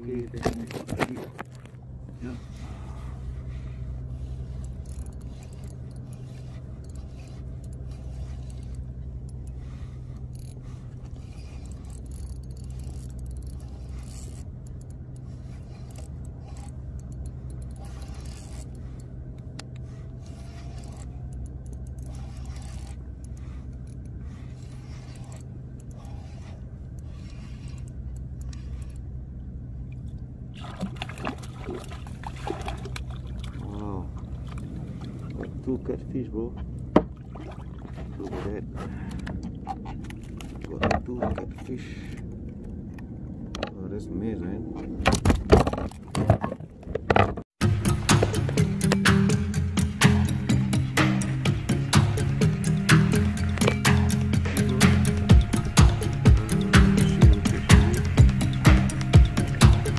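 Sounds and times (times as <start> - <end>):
fishing reel scraping and clicking: 0.0 - 29.2, 47.6 - 59.9
steady low hum: 0.0 - 46.0, 47.6 - 59.9.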